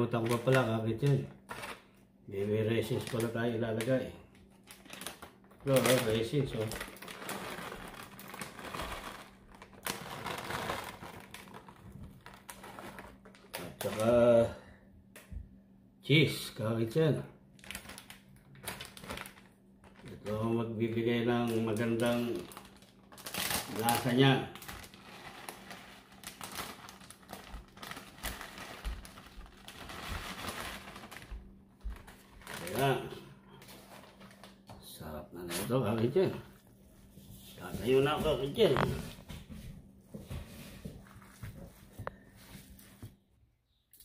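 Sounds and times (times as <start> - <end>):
plastic bag crinkling: 0.0 - 1.9, 2.8 - 14.3, 17.6 - 34.6.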